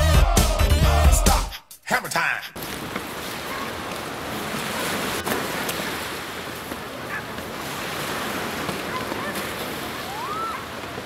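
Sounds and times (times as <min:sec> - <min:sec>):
wind: 0:02.1 - 0:11.0
waves rushing on shore: 0:02.4 - 0:11.0.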